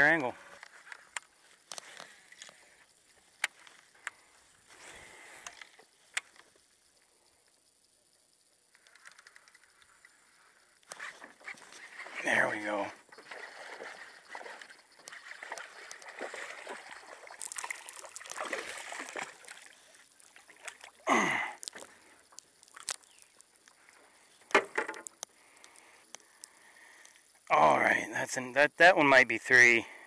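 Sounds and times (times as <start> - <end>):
fish splashing and thrashing: 12.9 - 27.4.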